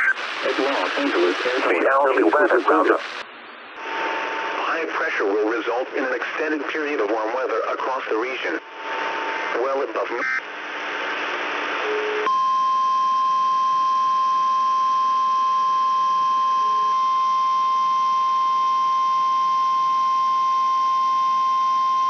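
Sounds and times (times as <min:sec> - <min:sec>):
radio hiss: 0:00.0 - 0:11.8
steady high alarm beep: 0:12.2 - 0:22.0.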